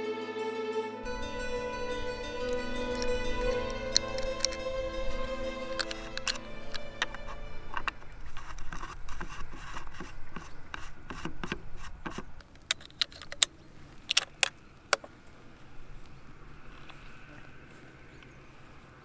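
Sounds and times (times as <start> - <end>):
sharp clicks: 1.4 - 15.2
metal scraping with clicks: 1.8 - 13.5, 14.1 - 15.1.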